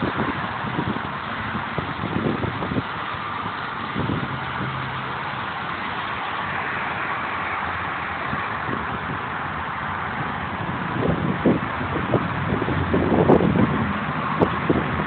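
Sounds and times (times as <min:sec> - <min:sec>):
wind thumps on microphone: 0:00.0 - 0:04.8, 0:10.2 - 0:15.0
road traffic: 0:00.0 - 0:15.0.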